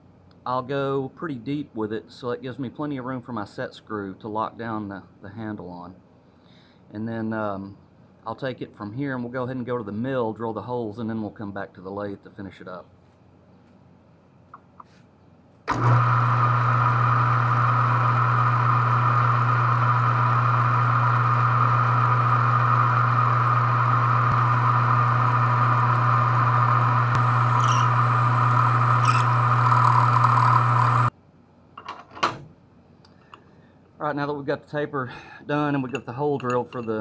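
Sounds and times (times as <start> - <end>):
lathe drilling metal: 15.7 - 31.1.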